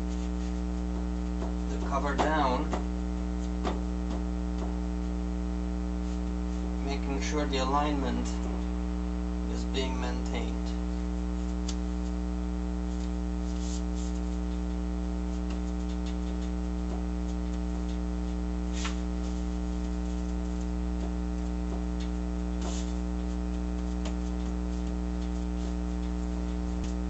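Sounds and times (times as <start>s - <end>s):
electrical mains hum: 0.0s - 27.0s
gloved hands brushing paper: 12.9s - 14.2s.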